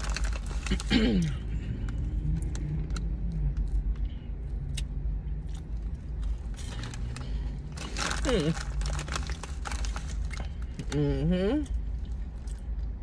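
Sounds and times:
car interior rumble: 0.0 - 13.0
crunchy snack chewing: 4.7 - 11.0.

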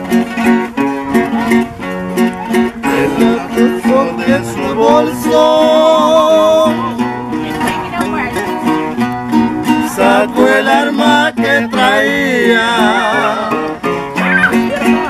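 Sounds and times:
acoustic guitars: 0.0 - 15.0
men singing: 2.8 - 7.1, 9.6 - 15.0.

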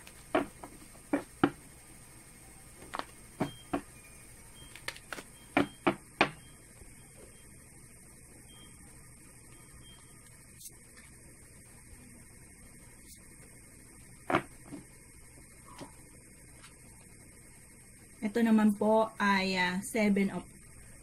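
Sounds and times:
faint electrical hum: 0.0 - 21.0
cards knocked on a table: 0.3 - 1.6.

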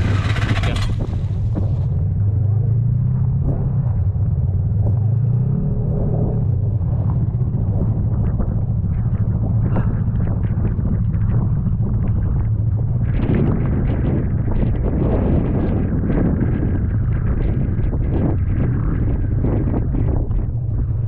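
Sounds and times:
snowmobile engine idling: 0.0 - 2.8.

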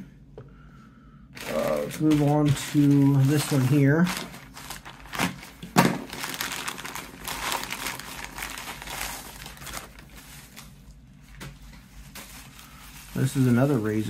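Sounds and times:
plastic and bubble wrap crinkling: 1.4 - 14.0
plastic mailer tearing: 1.4 - 14.0.

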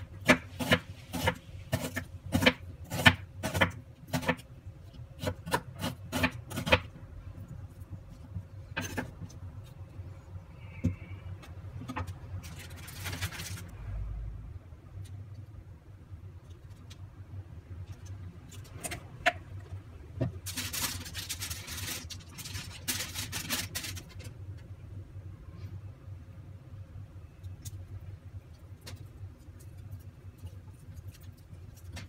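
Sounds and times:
steady low hum: 0.0 - 32.0
aluminium foil crinkling: 12.4 - 13.7, 20.3 - 24.4, 28.5 - 32.0.

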